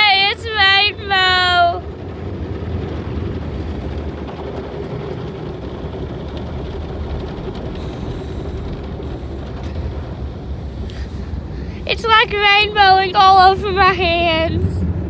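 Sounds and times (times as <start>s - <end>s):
car wash brushes and water: 0.0s - 15.0s
wash machinery hum: 0.0s - 15.0s.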